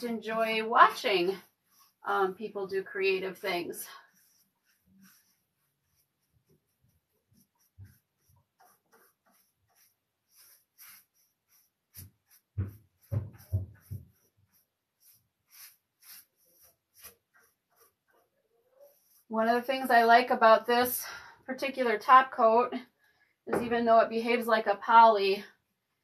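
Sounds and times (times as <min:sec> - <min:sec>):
paintbrush swishing: 0:00.0 - 0:20.4.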